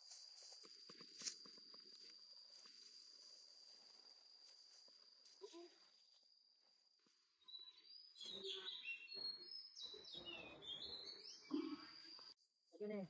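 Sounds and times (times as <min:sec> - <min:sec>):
faint birds chirping: 0:05.3 - 0:13.0.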